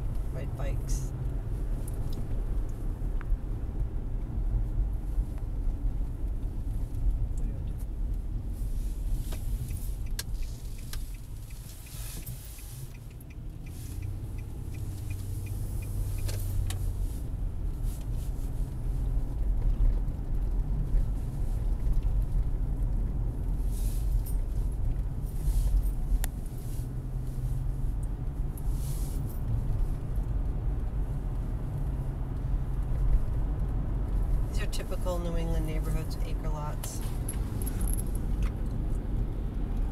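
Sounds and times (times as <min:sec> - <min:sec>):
car engine and tyres rumbling: 0:00.0 - 0:39.9.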